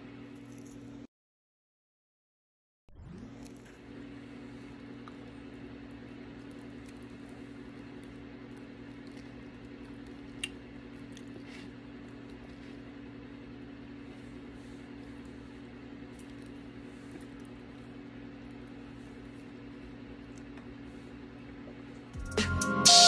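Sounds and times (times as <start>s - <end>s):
person chewing: 4.6s - 13.1s, 14.0s - 22.0s.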